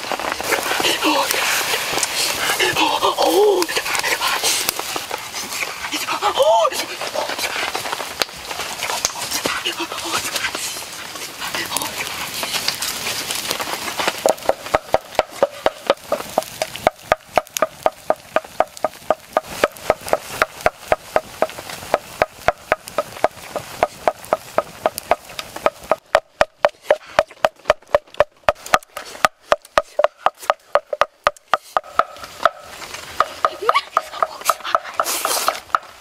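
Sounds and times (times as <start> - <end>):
rhythmic wooden knocking: 14.1 - 36.0.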